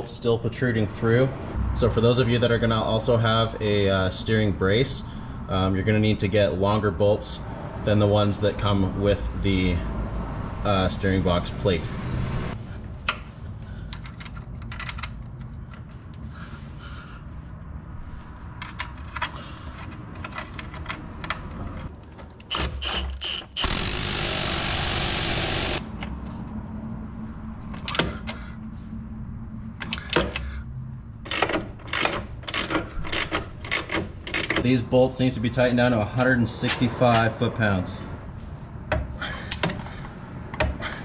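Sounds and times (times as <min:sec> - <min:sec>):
wrench clicking on bolts: 0:18.6 - 0:25.8, 0:31.2 - 0:34.6.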